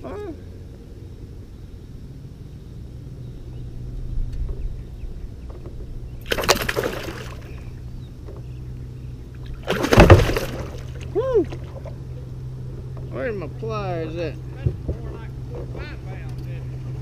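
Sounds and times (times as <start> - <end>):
fish splashing in water: 6.2 - 7.7, 9.4 - 11.9.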